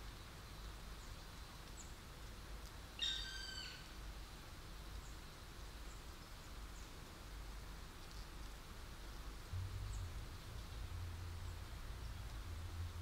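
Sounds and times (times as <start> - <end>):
faint background hiss: 0.0 - 13.0
woodpecker call: 3.0 - 3.8.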